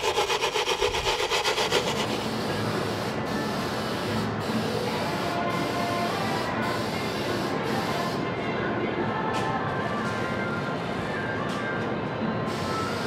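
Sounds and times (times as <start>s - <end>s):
wire brush scrubbing wood: 0.0s - 2.2s
aerosol can spraying: 0.0s - 8.2s.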